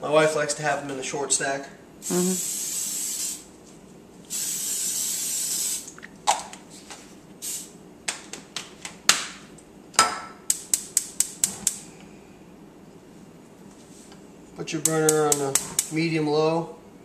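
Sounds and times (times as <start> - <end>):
cooking spray hissing: 2.0 - 3.5, 4.3 - 6.0, 7.4 - 7.7
gas burner igniter clicking: 14.8 - 16.0.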